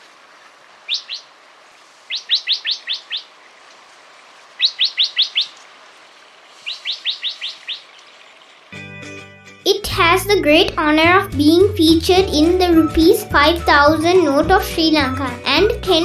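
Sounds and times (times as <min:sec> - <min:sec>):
bird calling high notes: 0:00.9 - 0:01.3, 0:02.1 - 0:03.3, 0:04.6 - 0:05.6, 0:06.6 - 0:08.8.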